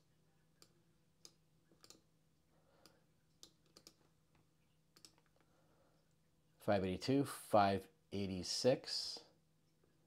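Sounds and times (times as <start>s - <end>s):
computer mouse clicks: 0.6s - 2.1s, 2.8s - 5.4s.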